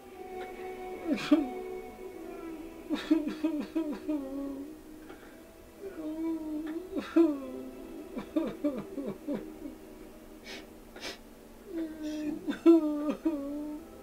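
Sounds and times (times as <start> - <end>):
person sobbing and whimpering: 0.4 - 4.7, 5.8 - 9.8, 10.5 - 13.8
breathy sniffs or gasps: 10.4 - 11.2.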